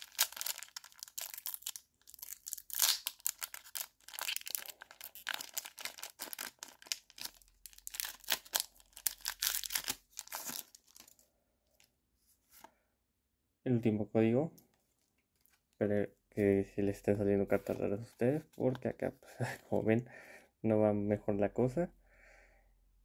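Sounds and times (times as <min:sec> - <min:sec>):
foil pack crinkling: 0:00.0 - 0:11.2.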